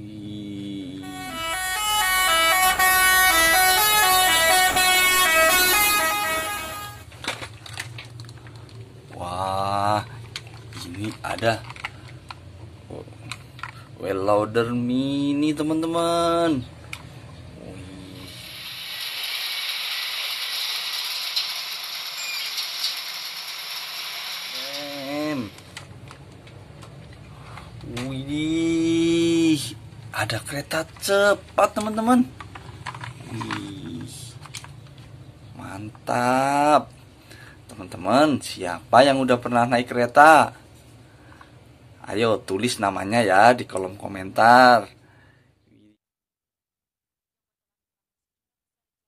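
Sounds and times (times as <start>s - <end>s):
musical bus horn playing notes: 1.0s - 7.1s.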